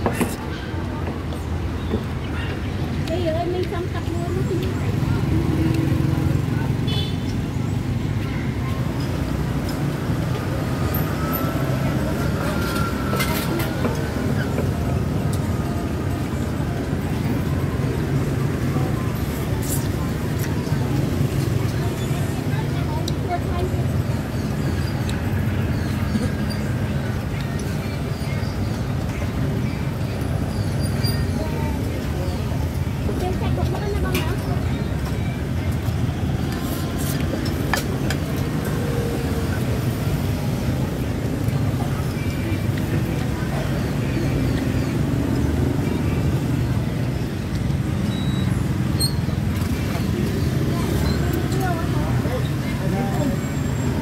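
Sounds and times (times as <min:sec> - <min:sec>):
low rumble of street traffic: 0:00.0 - 0:54.0.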